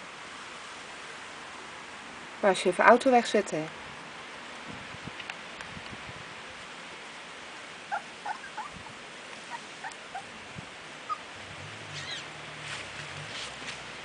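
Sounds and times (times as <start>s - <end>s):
faint steady hiss: 0.0s - 14.0s
puppies squeaking: 7.9s - 8.9s, 9.5s - 10.3s, 11.1s - 11.3s, 11.9s - 12.3s.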